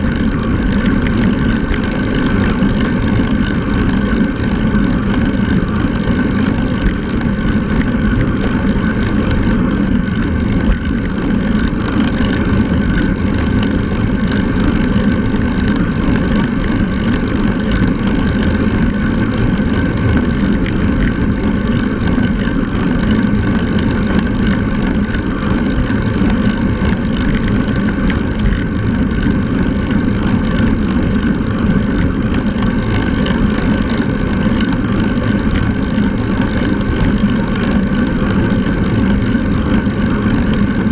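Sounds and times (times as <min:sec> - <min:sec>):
tyres humming on asphalt: 0:00.0 - 0:40.9.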